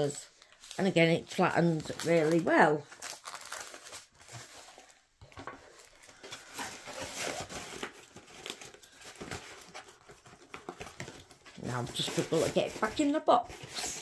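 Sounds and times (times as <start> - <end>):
canvas crinkling and rustling: 0.5 - 5.0.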